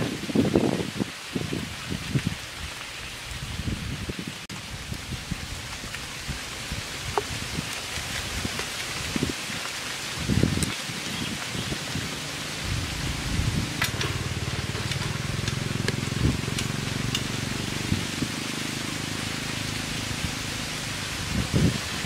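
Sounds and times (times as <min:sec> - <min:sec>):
low drone: 0:12.4 - 0:21.1.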